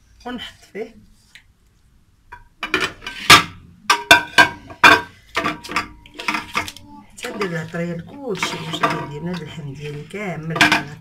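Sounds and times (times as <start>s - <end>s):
metal pot clanking and ringing: 3.9s - 10.0s.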